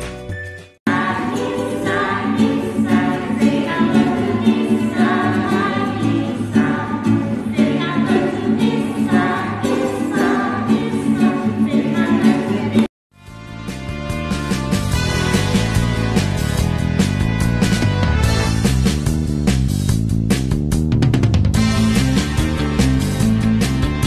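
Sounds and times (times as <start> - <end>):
acoustic guitar strumming: 0.9 - 12.9
voices singing: 0.9 - 12.9.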